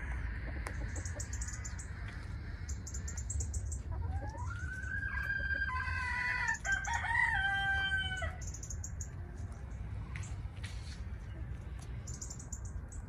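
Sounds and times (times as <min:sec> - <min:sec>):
rooster crowing: 0:04.5 - 0:08.4.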